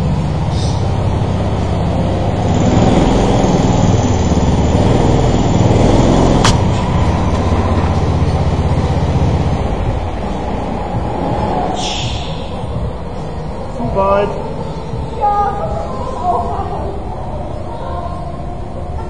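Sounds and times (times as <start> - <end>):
go-kart engines running: 0.0 - 19.0
sharp clack: 6.4 - 6.8.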